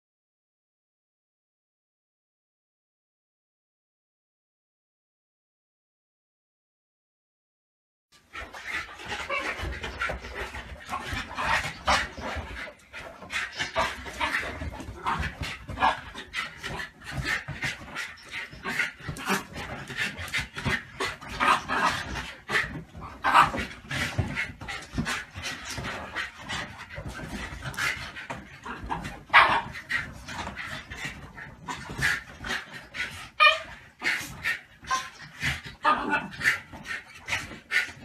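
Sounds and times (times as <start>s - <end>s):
dogs breathing: 8.2s - 38.0s.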